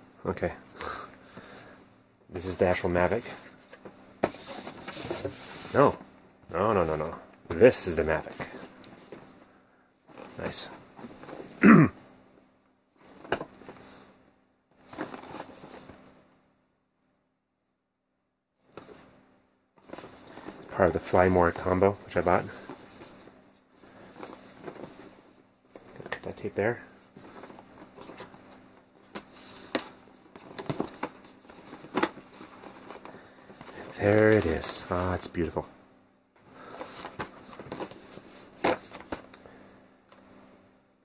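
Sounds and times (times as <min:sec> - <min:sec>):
papery rustling of box: 0:36.6 - 0:39.4.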